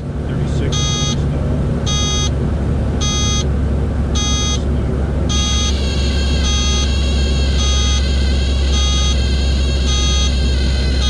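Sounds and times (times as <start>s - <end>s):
aircraft engine and propeller drone: 0.0s - 11.0s
cockpit warning horn beeping: 0.6s - 1.2s, 1.9s - 2.4s, 3.0s - 3.5s, 4.2s - 11.0s.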